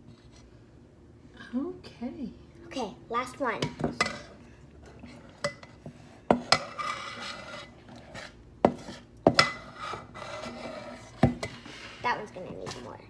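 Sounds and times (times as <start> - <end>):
metal spoon scraping a bowl: 4.0 - 11.6.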